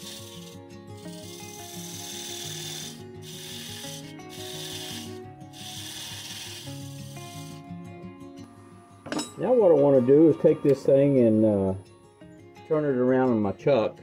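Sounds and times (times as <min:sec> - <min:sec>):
parting tool cutting spinning wood: 0:00.0 - 0:07.6.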